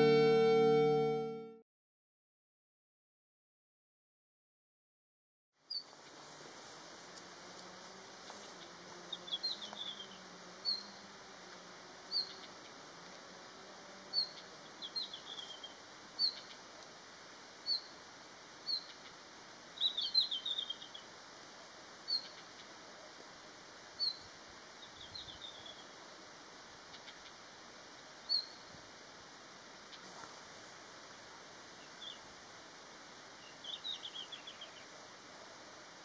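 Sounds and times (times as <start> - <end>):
bird calling high notes: 0.0 - 1.5.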